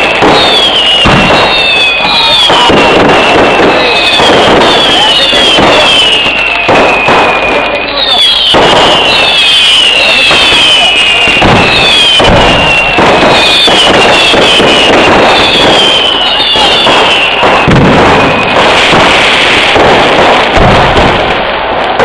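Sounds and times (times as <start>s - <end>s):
rocket whistles falling in pitch: 0.0s - 21.2s
fireworks banging: 0.0s - 22.0s.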